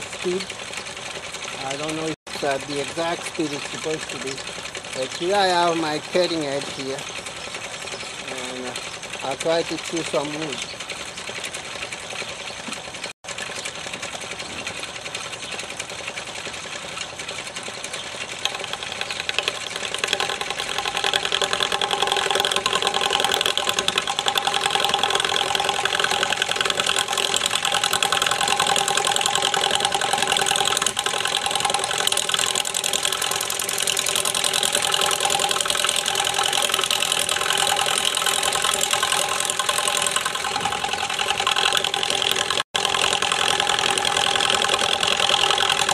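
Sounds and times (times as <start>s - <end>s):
lathe rattling: 0.0s - 45.9s
wood lathe motor humming: 0.0s - 45.9s.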